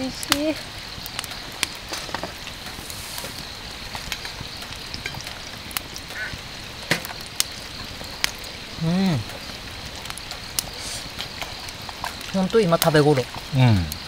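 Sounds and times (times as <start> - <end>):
campfire crackling and popping: 0.0 - 14.0.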